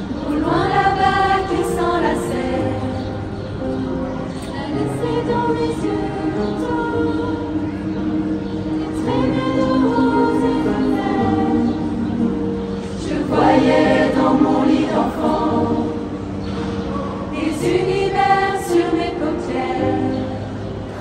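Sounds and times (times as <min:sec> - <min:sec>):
mixed choir singing: 0:00.0 - 0:21.0.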